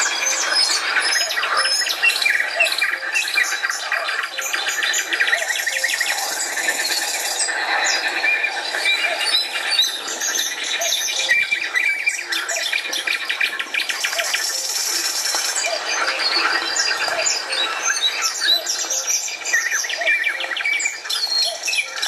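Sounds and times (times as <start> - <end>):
songbirds singing and chirping: 0.0 - 22.0.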